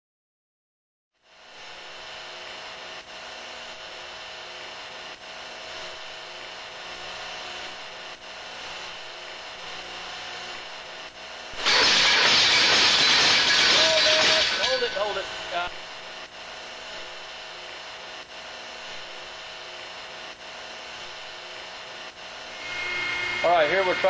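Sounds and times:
machine running steadily: 1.3s - 24.0s
faint humming tones: 12.5s - 24.0s.

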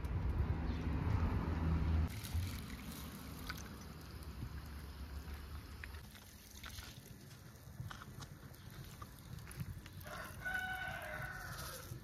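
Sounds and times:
rooster crowing: 10.0s - 12.0s.

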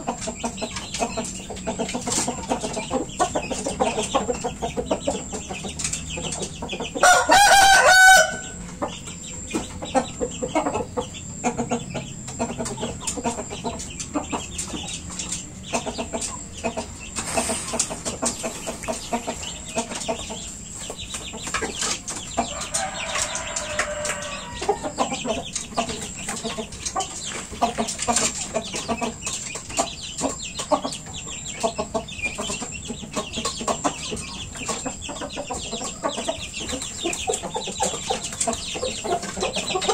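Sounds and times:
chickens clucking: 0.0s - 39.9s
rooster crowing: 7.0s - 8.6s, 22.4s - 25.2s.

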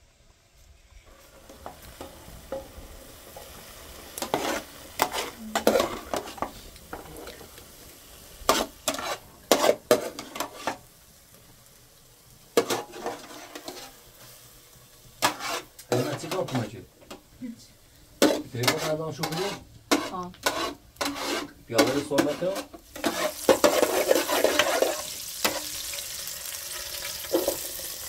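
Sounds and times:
faint sizzle: 0.0s - 28.0s
metal ladle scraping a pot: 4.2s - 7.0s, 8.5s - 10.8s, 12.6s - 14.0s, 15.2s - 16.7s, 18.2s - 25.9s.

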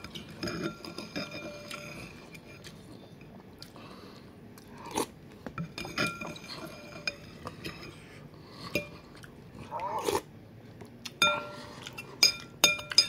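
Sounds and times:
cutlery clinking against a bowl: 0.0s - 2.7s, 5.6s - 8.0s, 11.2s - 13.0s.

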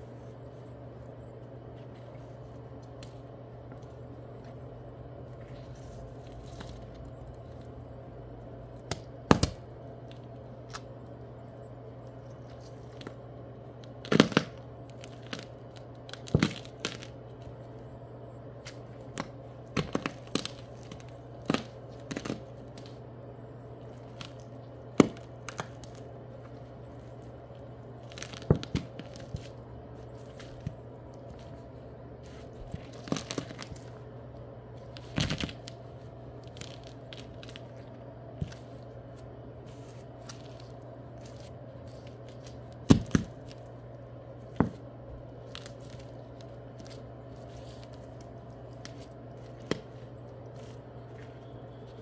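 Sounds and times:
cucumber snapping and cracking: 8.8s - 10.9s, 24.1s - 26.0s.

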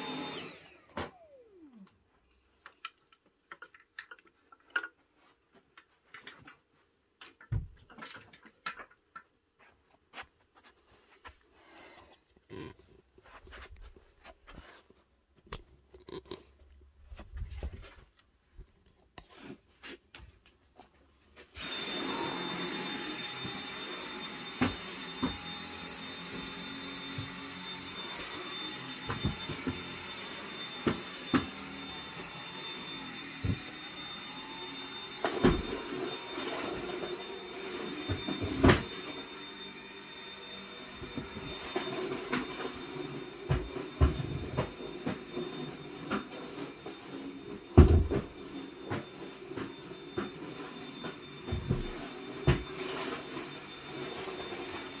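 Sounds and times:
stick vacuum cleaner whine: 0.0s - 2.5s, 21.4s - 55.0s
faint clicks and shuffles: 8.5s - 21.6s.

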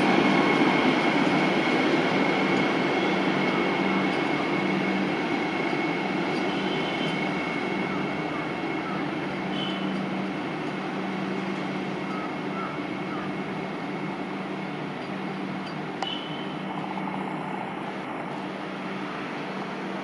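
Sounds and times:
electric train running: 0.0s - 20.0s.

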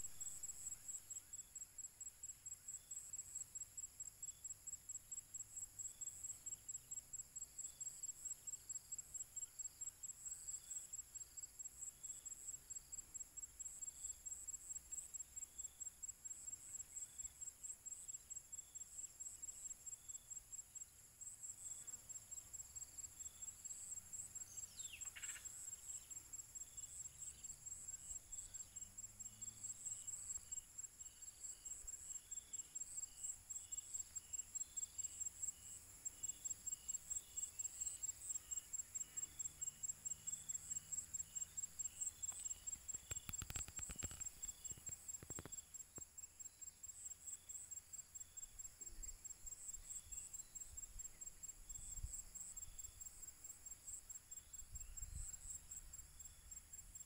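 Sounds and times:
crickets chirping: 0.0s - 57.0s
faint spaced pips: 42.2s - 45.6s.

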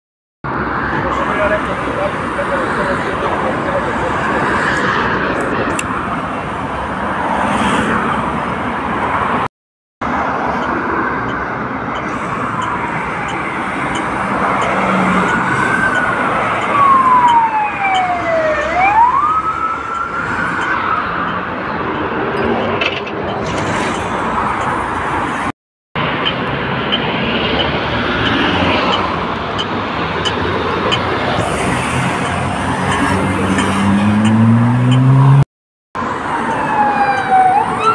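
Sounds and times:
street traffic: 0.4s - 37.9s
police siren: 12.2s - 22.0s, 36.0s - 37.9s.

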